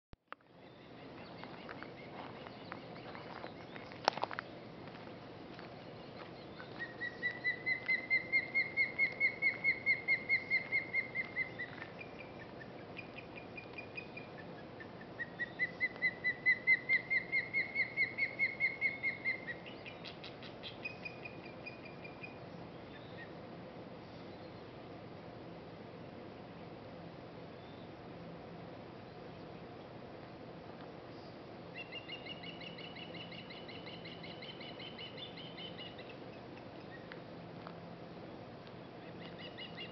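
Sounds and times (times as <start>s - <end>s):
fledglings high calls: 0.6s - 23.4s, 31.2s - 37.6s, 38.8s - 39.9s
osprey whistled warning calls: 0.6s - 23.4s, 27.5s - 28.1s, 30.9s - 37.6s, 38.8s - 39.9s.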